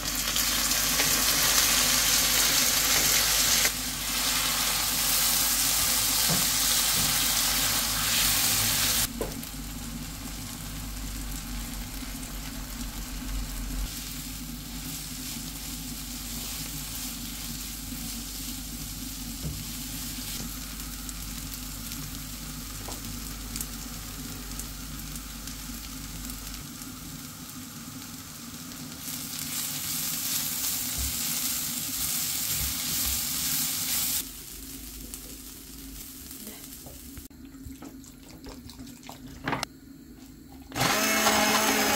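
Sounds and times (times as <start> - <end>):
vegetables sizzling in frying pan: 0.0 - 37.3.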